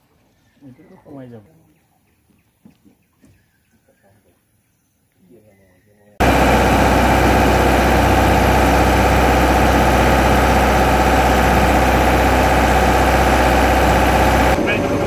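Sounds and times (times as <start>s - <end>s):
boat engine running: 6.2s - 15.0s.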